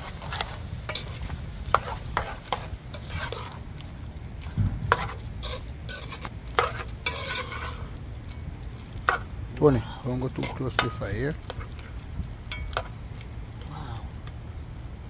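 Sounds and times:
spoon scraping a cooking pot: 0:00.0 - 0:03.6, 0:04.9 - 0:07.9.

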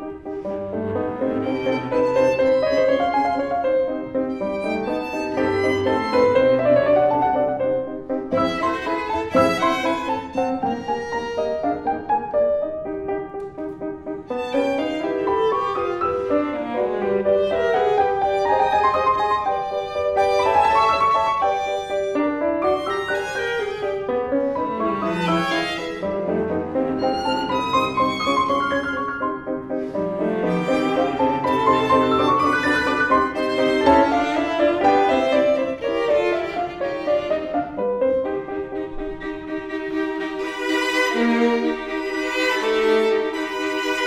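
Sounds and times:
bowed strings: 0:00.0 - 0:44.0
piano chords: 0:00.0 - 0:44.0.

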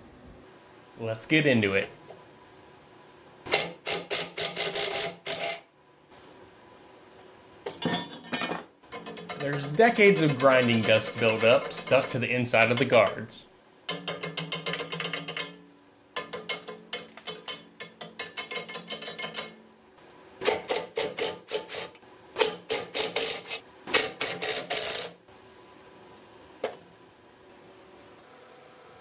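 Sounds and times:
metal scraper rasping on metal: 0:03.5 - 0:05.6, 0:08.9 - 0:13.0, 0:20.4 - 0:25.1
screwdriver clicks and scrapes: 0:03.5 - 0:05.6, 0:21.0 - 0:25.1.

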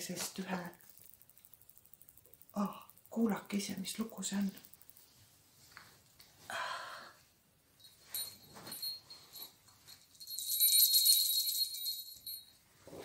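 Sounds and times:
small bells jingling: 0:07.7 - 0:13.0.

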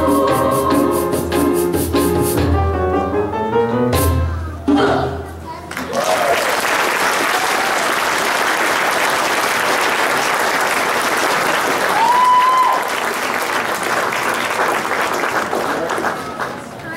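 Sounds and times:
audience applauding: 0:05.7 - 0:16.9
high-pitched cheer: 0:05.8 - 0:08.4, 0:11.6 - 0:13.2.

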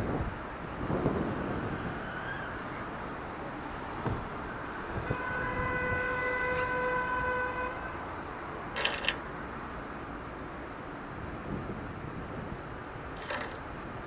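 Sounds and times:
city traffic passing: 0:00.0 - 0:14.0
vehicle horn: 0:05.0 - 0:08.0.

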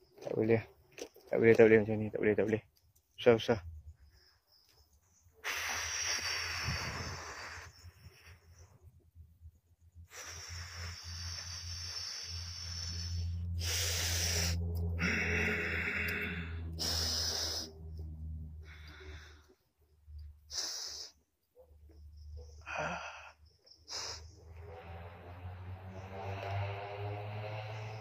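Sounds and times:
man breathing hard: 0:05.4 - 0:08.7, 0:10.0 - 0:19.8, 0:20.4 - 0:21.3, 0:22.5 - 0:24.4.

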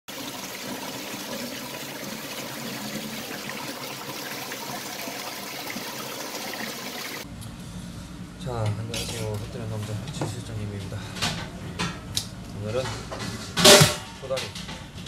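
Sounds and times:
water rushing in tank: 0:00.1 - 0:07.2.

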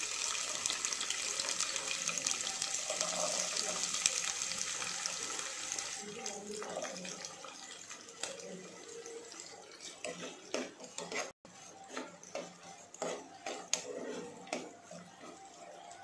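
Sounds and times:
onions sizzling in oil: 0:00.0 - 0:10.7
spatula scraping a pot: 0:08.2 - 0:16.0.

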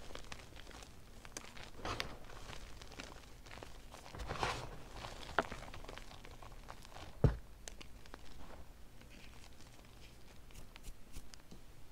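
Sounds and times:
thump: 0:07.2 - 0:07.4.

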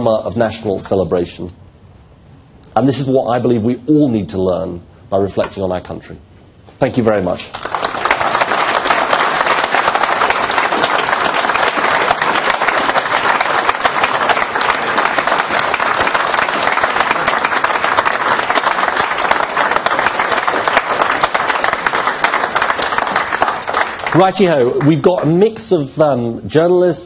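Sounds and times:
audience applauding: 0:07.5 - 0:25.3.

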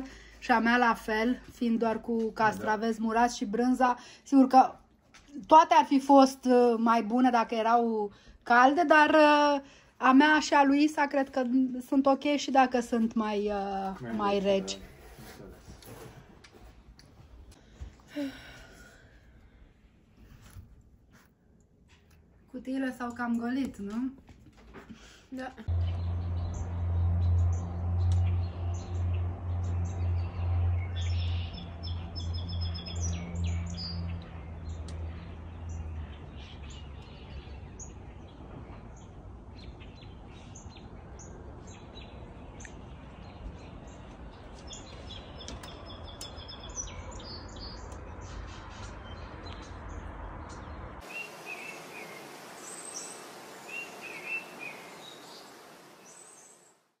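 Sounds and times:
low steady hum: 0:25.6 - 0:32.4, 0:51.0 - 0:56.7
songbirds chirping and singing: 0:25.7 - 0:38.4, 0:39.6 - 0:56.6.

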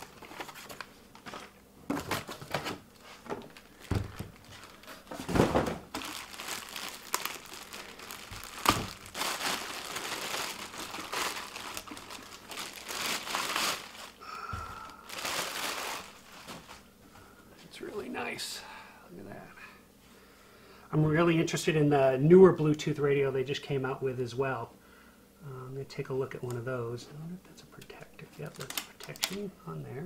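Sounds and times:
plastic bag crinkling: 0:00.0 - 0:16.9, 0:28.4 - 0:29.4.

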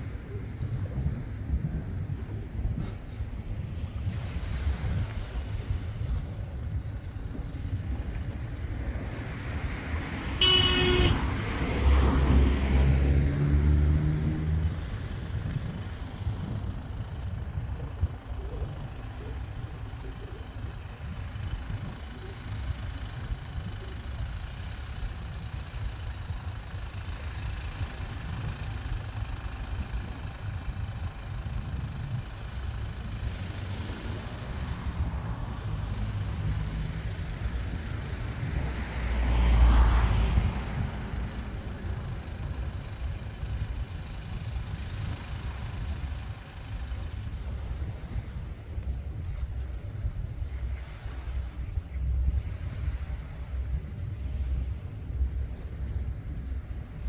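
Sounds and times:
low outdoor rumble: 0:00.0 - 0:57.0
vehicle engine hum: 0:00.0 - 0:57.0
vehicle passing by: 0:03.6 - 0:17.0, 0:33.0 - 0:43.7.

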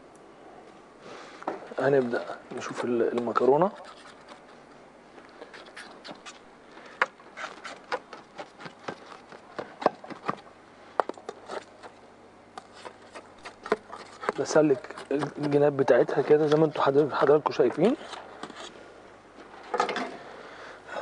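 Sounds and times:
knife scraping baking tray: 0:01.9 - 0:04.5, 0:12.6 - 0:18.8.

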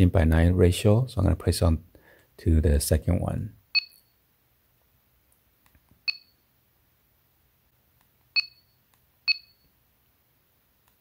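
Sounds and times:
short two-pitch key beeps: 0:08.4 - 0:09.7.

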